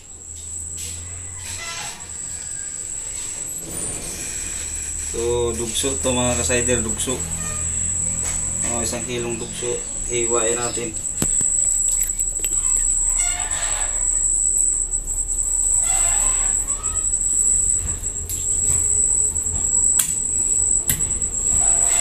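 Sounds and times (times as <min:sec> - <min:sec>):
high-pitched insect trill: 0:00.0 - 0:22.0
low hum: 0:00.0 - 0:22.0
short calls: 0:04.7 - 0:14.8.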